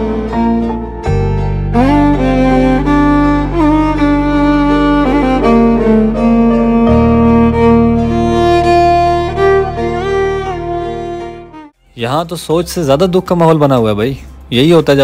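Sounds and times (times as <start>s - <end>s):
slow bowed-string melody: 0.0s - 15.0s.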